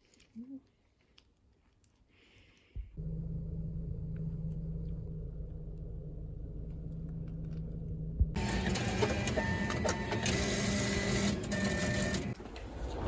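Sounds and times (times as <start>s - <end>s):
low mechanical hum: 2.8s - 13.0s.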